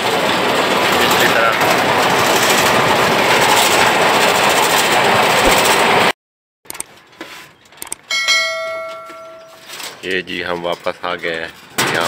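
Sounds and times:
cable car cabin rattling: 0.0s - 6.1s
bright bell-like ding: 8.1s - 9.7s.

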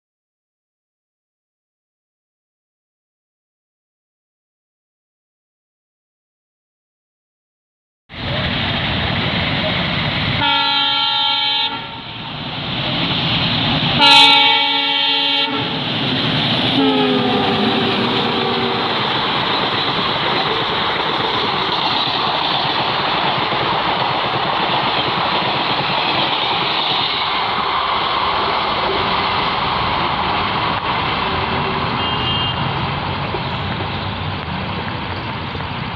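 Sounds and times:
locomotive passing: 8.1s - 35.9s
train coaches clickety-clack: 8.2s - 35.9s
locomotive horn blasts: 10.4s - 12.1s, 14.0s - 15.8s, 16.8s - 19.1s, 31.2s - 32.7s.

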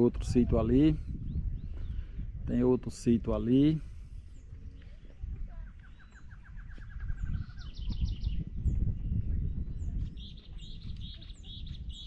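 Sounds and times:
small birds trilling: 3.5s - 12.0s
high bird chirps: 5.6s - 12.0s.

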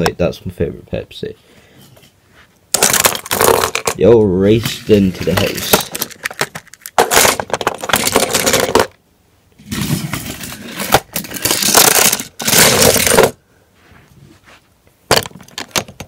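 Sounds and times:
toy vehicles rattling on wooden track: 2.8s - 9.0s, 9.6s - 13.4s.

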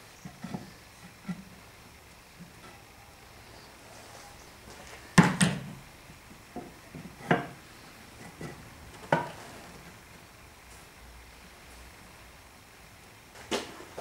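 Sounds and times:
wooden panels knocking together: 5.2s - 5.8s.

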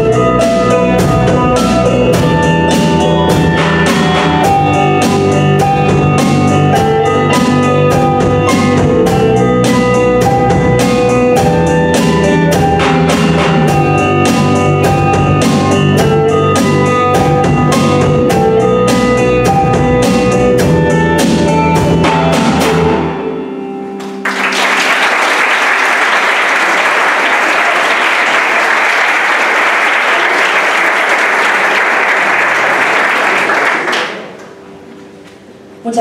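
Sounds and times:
live band playing: 0.0s - 35.4s
audience applause: 24.2s - 34.5s.

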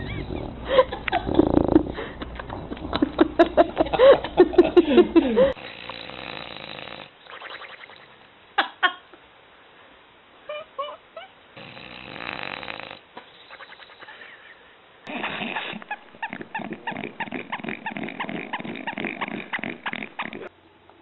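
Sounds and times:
dog snoring: 1.3s - 2.0s, 5.5s - 7.1s, 11.6s - 13.0s, 15.1s - 20.5s.

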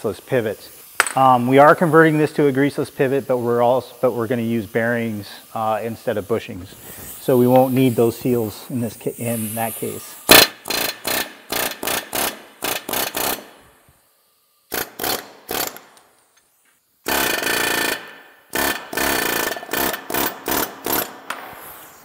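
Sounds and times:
pneumatic air hammer bursts: 6.7s - 8.4s, 9.1s - 22.0s.

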